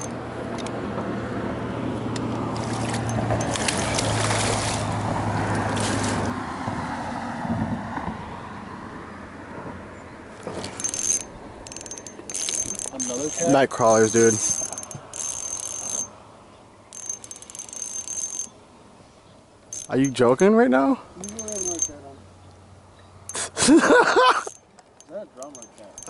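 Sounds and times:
water and wind noise: 0:00.0 - 0:22.8
motorboat engine passing: 0:01.1 - 0:08.6
sharp clicks: 0:10.6 - 0:16.1.

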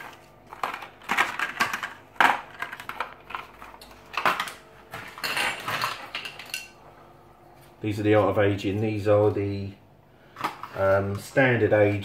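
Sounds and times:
plastic packaging crackling: 0:00.0 - 0:06.6.

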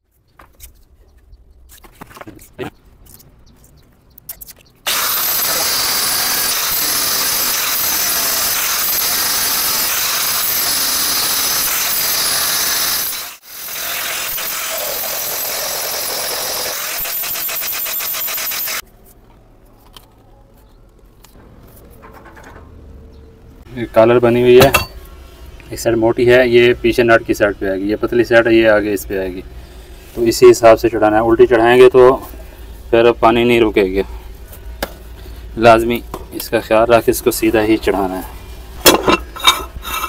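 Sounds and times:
angle grinder grinding pipe: 0:04.9 - 0:18.8, 0:38.9 - 0:40.0.

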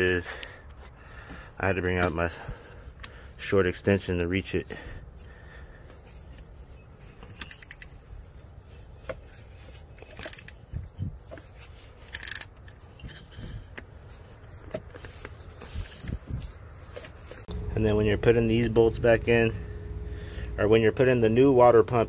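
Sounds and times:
ratchet and socket clinking: 0:07.2 - 0:08.0, 0:09.7 - 0:13.4.

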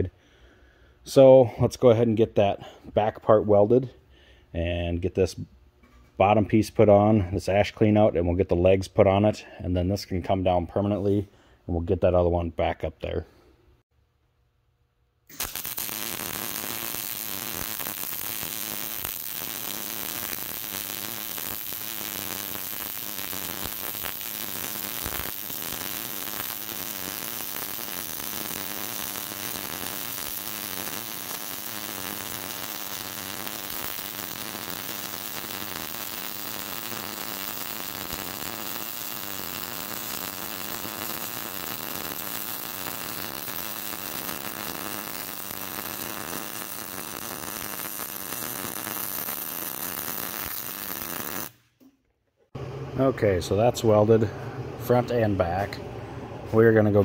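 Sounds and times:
welding arc buzzing hiss: 0:15.3 - 0:51.7.

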